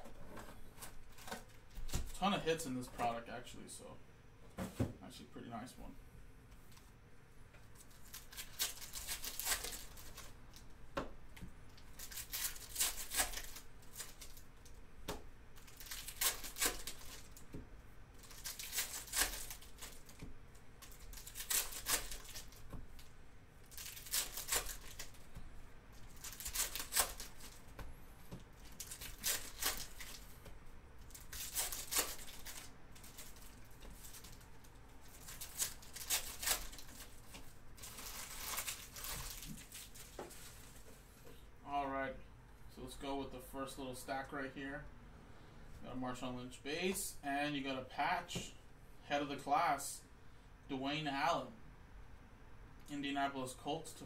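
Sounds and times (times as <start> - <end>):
plastic wrappers tearing and crinkling: 7.8 - 10.7, 11.7 - 14.8, 15.5 - 17.5, 18.2 - 25.3, 26.0 - 27.7, 28.6 - 30.4, 31.0 - 40.8.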